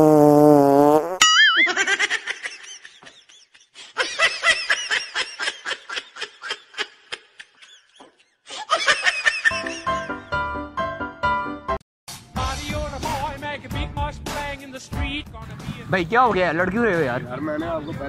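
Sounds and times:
short warbling tone: 0:01.2 - 0:01.8
high-pitched laughter: 0:01.2 - 0:10.1.

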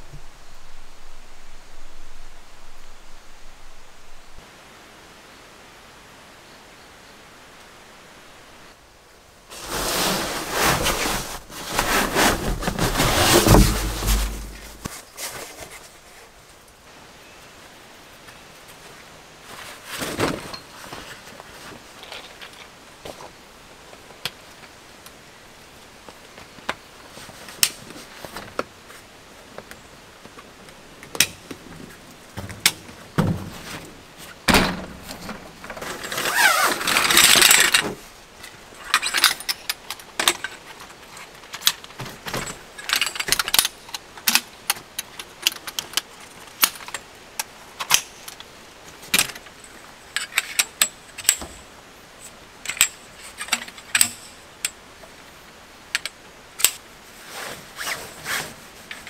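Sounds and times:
nylon fabric rustling: 0:09.5 - 0:15.6, 0:57.2 - 0:58.7.

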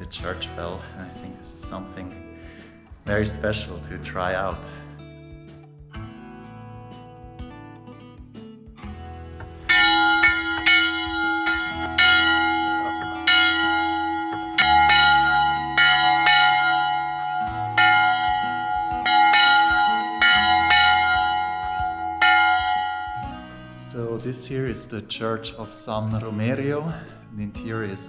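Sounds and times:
church bell ringing: 0:09.7 - 0:23.7.

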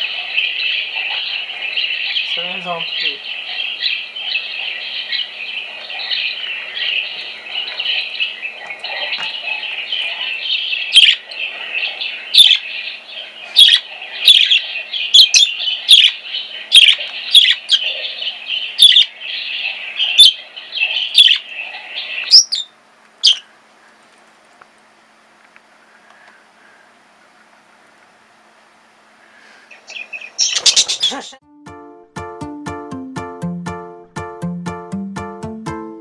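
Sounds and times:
budgerigar warbling chatter: 0:00.0 - 0:23.5, 0:29.7 - 0:31.4.

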